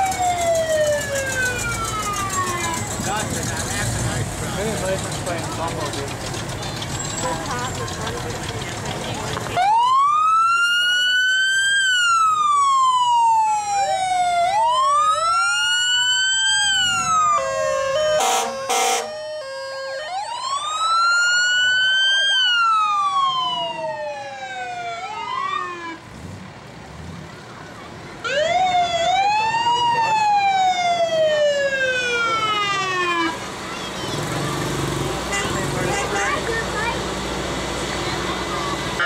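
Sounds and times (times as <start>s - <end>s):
fire truck siren wailing: 0.0s - 3.8s, 5.6s - 26.1s, 28.2s - 33.6s, 34.2s - 39.0s
blaring horn blasts: 17.4s - 19.9s.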